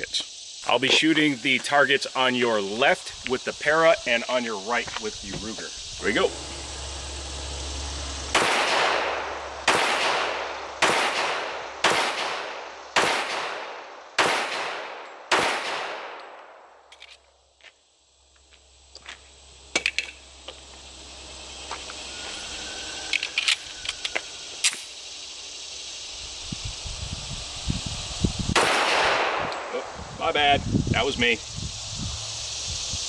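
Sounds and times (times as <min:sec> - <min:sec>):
pistol shots: 0:08.3 - 0:16.4, 0:28.6 - 0:29.7.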